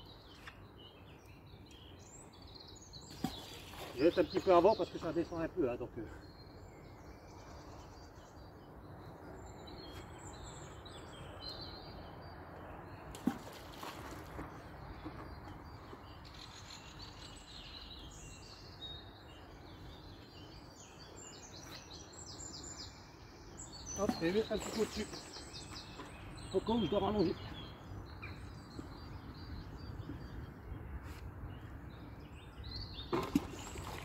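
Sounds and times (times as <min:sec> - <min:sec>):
small birds singing and chirping: 0:00.0 - 0:34.0.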